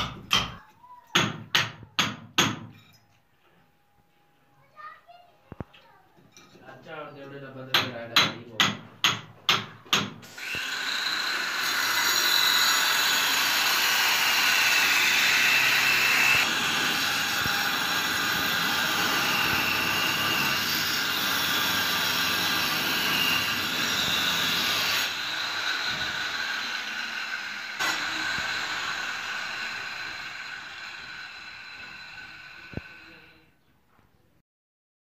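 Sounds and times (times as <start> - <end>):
power tool whining: 10.3 - 33.4.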